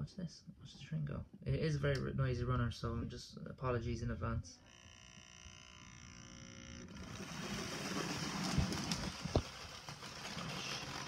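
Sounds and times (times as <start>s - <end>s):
model train motor whirring: 4.6s - 11.0s.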